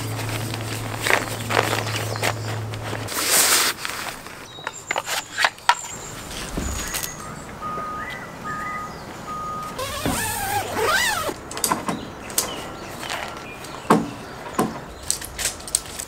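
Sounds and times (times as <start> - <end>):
tent poles clicking and knocking: 0.0 - 7.3, 9.8 - 16.0
short electronic beeps: 6.6 - 10.7.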